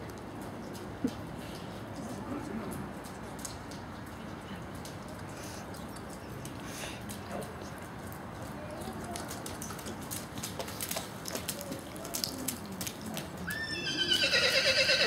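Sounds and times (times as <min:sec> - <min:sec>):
low crowd hubbub: 0:00.0 - 0:15.0
pony whinnying: 0:13.5 - 0:15.0.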